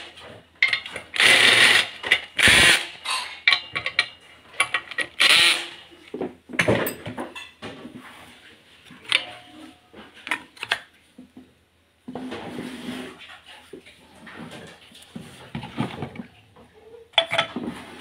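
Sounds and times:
metal parts clinking and knocking: 3.0 - 5.2.

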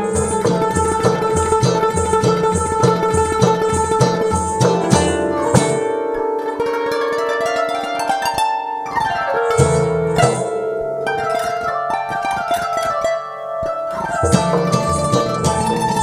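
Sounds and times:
steady music beat: 0.0 - 6.0, 14.2 - 16.0
plucked string notes: 0.0 - 16.0.

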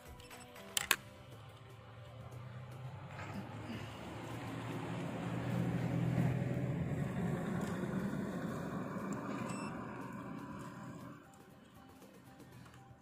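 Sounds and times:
vehicle engine passing by: 1.3 - 11.3.

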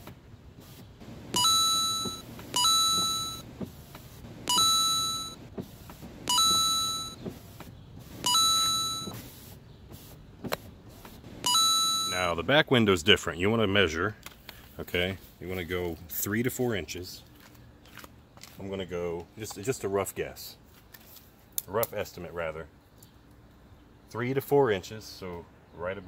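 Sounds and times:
car electronic warning chime: 1.3 - 3.5, 4.4 - 5.4, 6.3 - 7.2, 8.2 - 9.2, 11.4 - 12.4.

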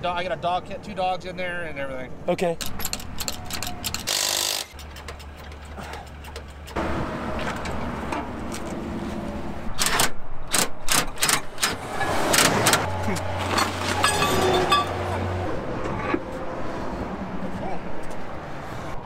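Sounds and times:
tools clicking and clanking: 2.4 - 6.8.

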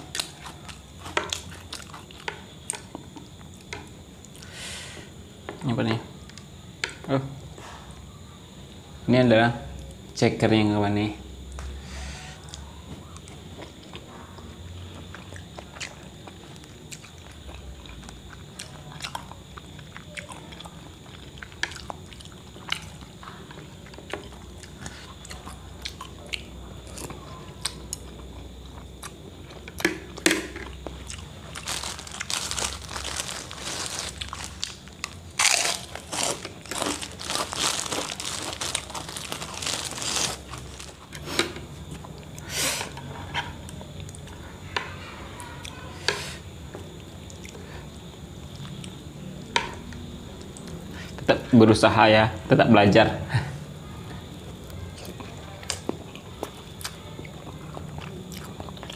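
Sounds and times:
crunching on crackers: 0.0 - 3.7, 13.2 - 42.5
slurping and chewing: 23.8 - 44.2
plastic bag rustling: 31.3 - 41.1.

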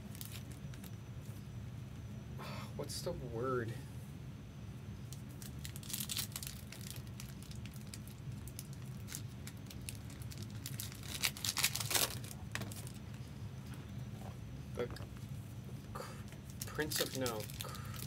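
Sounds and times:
packaging crinkling and rustling: 0.0 - 1.0, 5.1 - 13.3, 16.4 - 18.0
steady low hum: 0.0 - 18.0.

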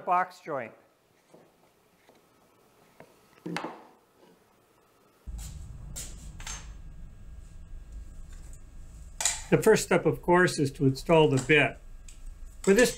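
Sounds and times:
steady low hum: 5.2 - 12.9.

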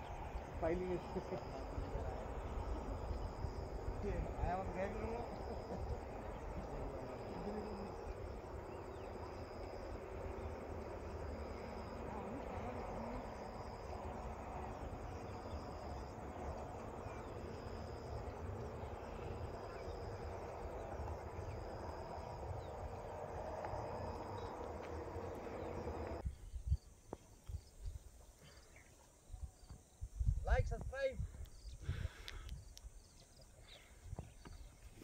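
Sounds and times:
low steady rumble: 0.0 - 26.8
insects trilling: 0.0 - 35.0.

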